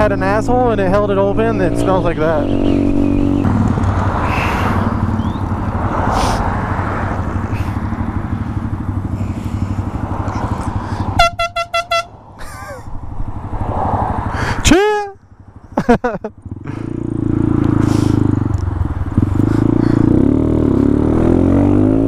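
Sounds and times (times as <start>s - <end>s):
motorcycle engine running: 0.0s - 6.1s, 7.0s - 12.0s, 15.2s - 22.0s
wind rush: 2.7s - 11.2s, 12.2s - 14.7s
short high air horn blasts: 11.2s - 12.1s.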